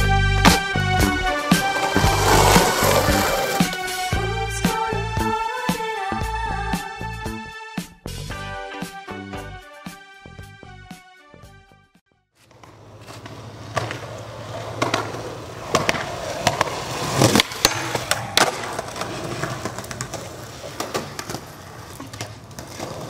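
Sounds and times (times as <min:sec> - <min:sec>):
skateboard wheels rolling on concrete: 0:00.0 - 0:04.8, 0:12.4 - 0:23.0
skateboard clacks: 0:01.4 - 0:04.1, 0:12.5 - 0:23.0.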